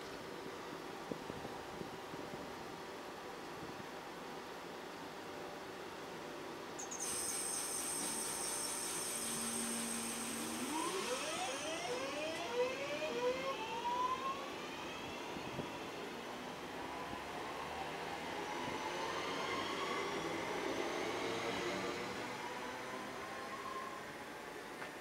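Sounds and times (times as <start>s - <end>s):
electric train motor whine: 7.2s - 16.1s.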